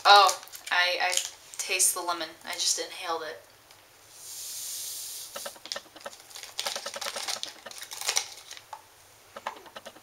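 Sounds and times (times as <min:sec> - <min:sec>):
soft hiss: 0:02.4 - 0:06.0
plastic bottle crackling: 0:05.4 - 0:08.8.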